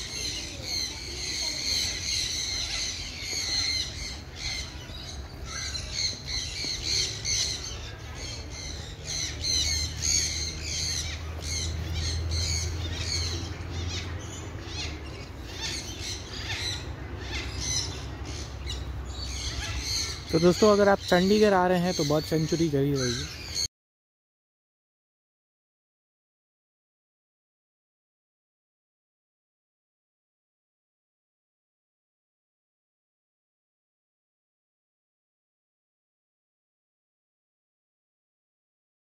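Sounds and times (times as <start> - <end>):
birds squawking and chirping: 0.0 - 23.7.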